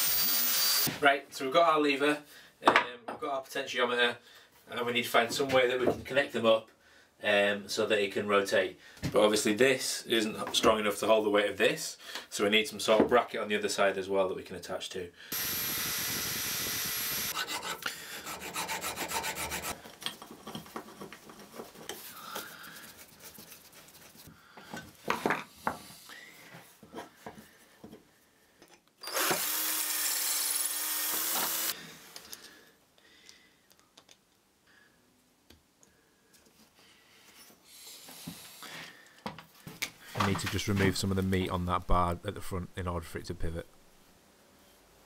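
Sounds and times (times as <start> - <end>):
power tool running: 0.0 - 0.9, 15.3 - 17.5, 29.0 - 31.8.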